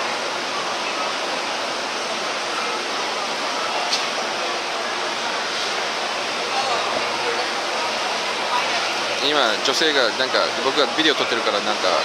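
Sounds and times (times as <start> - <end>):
indoor crowd din: 0.0 - 12.0.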